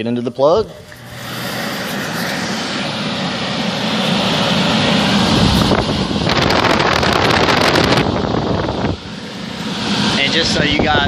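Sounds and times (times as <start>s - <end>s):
blower whoosh of air: 0.7s - 11.0s.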